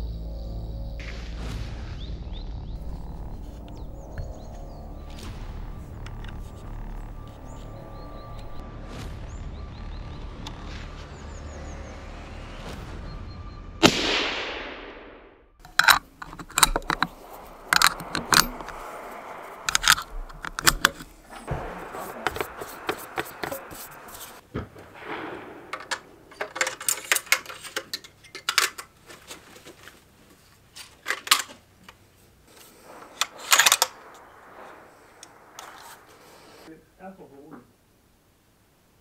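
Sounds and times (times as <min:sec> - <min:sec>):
rifle cartridges clicking into magazine: 0:15.7 - 0:19.0, 0:19.7 - 0:21.2, 0:25.8 - 0:28.9, 0:33.2 - 0:34.2.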